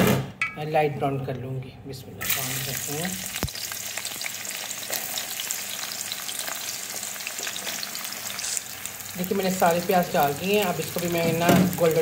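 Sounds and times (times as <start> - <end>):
onions sizzling in fat: 2.2 - 12.0.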